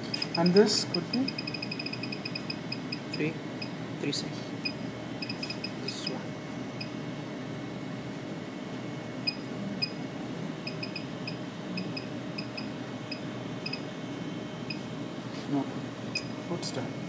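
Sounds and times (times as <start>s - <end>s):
steady background hum: 0.0s - 17.0s
short electronic keypad beeps: 5.2s - 5.7s.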